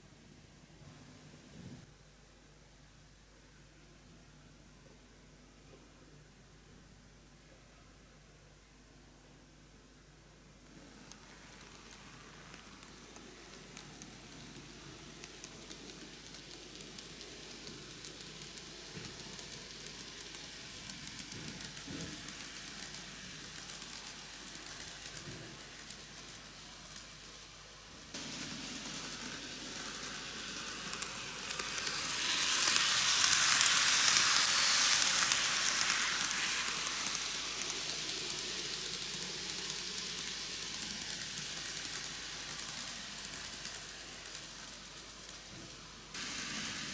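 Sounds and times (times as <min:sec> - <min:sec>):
model train wheels hissing on rails: 0:10.4 - 0:46.9.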